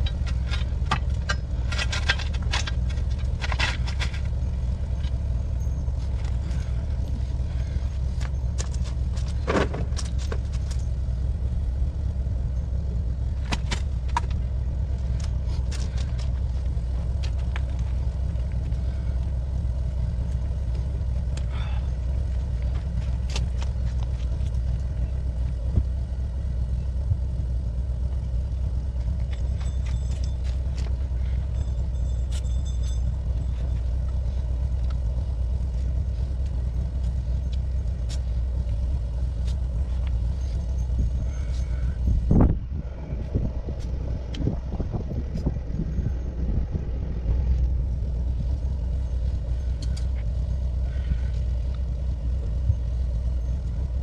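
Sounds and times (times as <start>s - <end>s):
light clicks and rattles: 0.0s - 11.6s, 12.8s - 26.8s, 47.4s - 53.7s
low rumble: 0.0s - 54.0s.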